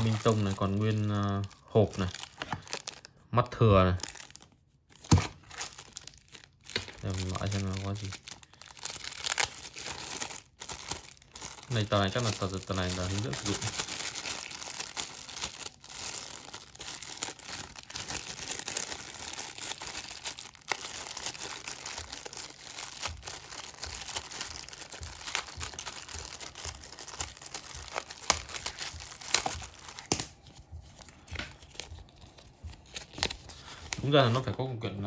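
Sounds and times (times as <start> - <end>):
plastic bag crinkling: 0.0 - 34.8
paper leaflet rustling: 25.6 - 34.7.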